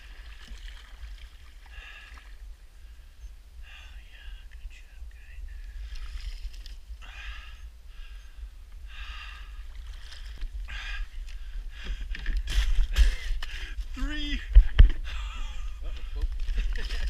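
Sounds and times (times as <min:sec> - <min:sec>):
person breathing hard: 0:01.7 - 0:04.2, 0:07.0 - 0:09.7, 0:10.6 - 0:12.3, 0:15.0 - 0:16.2
wind rumble on microphone: 0:02.3 - 0:17.0.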